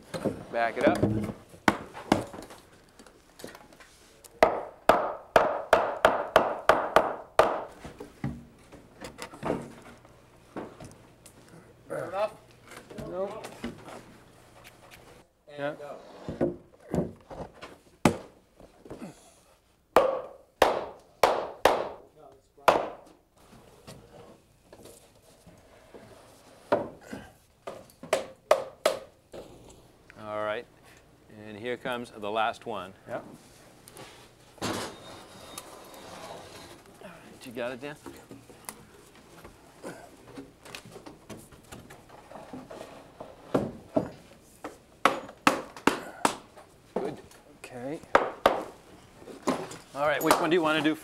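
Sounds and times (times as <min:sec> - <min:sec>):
hammer knocking on wood: 0:04.4 - 0:07.7, 0:20.0 - 0:22.0, 0:48.1 - 0:48.7.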